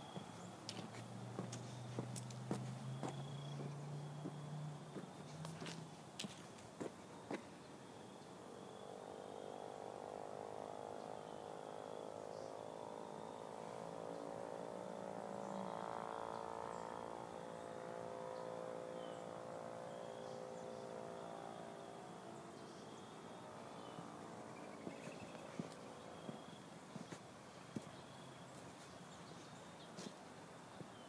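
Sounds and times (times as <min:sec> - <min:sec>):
faint high chirping: 0:00.0 - 0:01.8, 0:02.5 - 0:09.6, 0:19.9 - 0:30.1
droning hum with overtones: 0:00.0 - 0:28.6.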